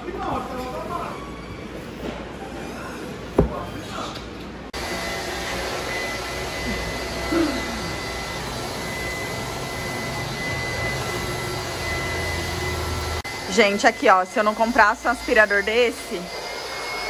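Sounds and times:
vacuum cleaner running: 0:04.8 - 0:17.0.

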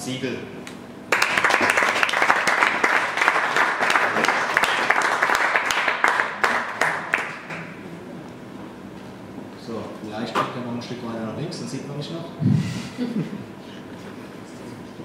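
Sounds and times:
audience applauding: 0:01.1 - 0:07.7.

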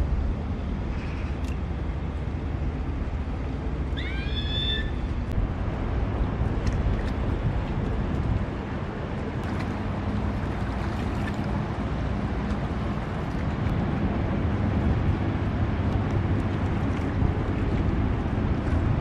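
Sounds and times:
wind buffeting microphone: 0:05.0 - 0:19.0.

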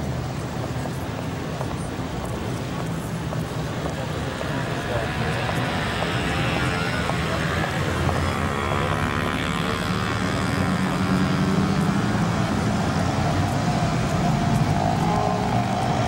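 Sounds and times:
traffic engine rumble: 0:00.0 - 0:16.0
higher engine note: 0:04.0 - 0:16.0.

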